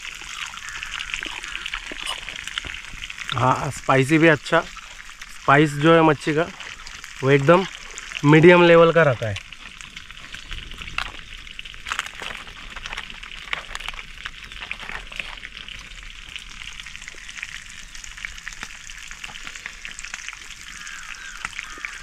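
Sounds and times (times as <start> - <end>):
fish sizzling in hot oil: 0.0 - 22.0.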